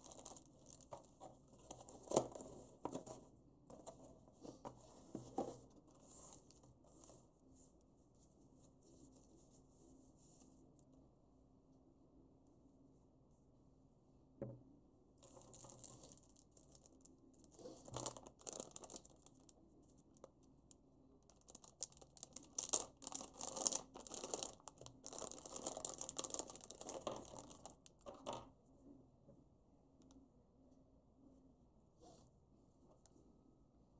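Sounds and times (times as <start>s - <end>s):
plastic bag crinkling: 0.0s - 2.4s, 15.2s - 17.0s, 17.8s - 19.6s, 21.3s - 28.4s.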